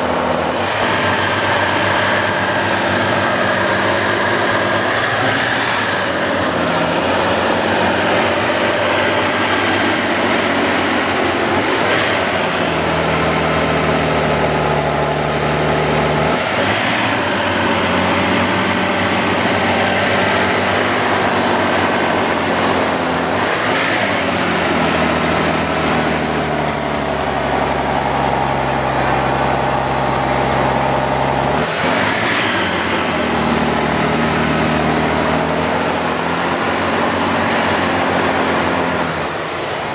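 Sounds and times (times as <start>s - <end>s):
diesel engine working hard: 0.0s - 39.9s.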